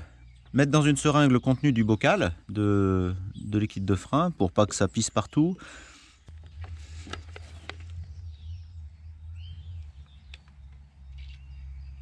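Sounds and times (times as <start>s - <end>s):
bird chirps: 0.0s - 12.0s
low steady hum: 5.6s - 12.0s.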